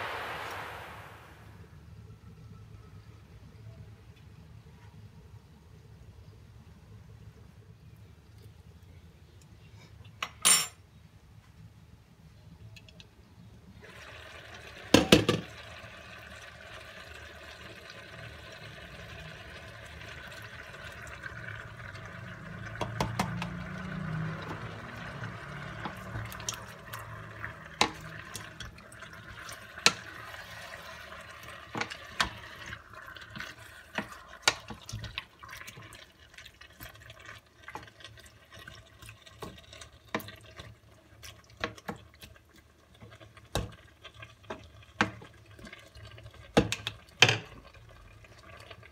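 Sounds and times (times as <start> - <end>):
liquid pouring into pot: 13.8 - 48.9
pot bubbling: 13.8 - 48.9.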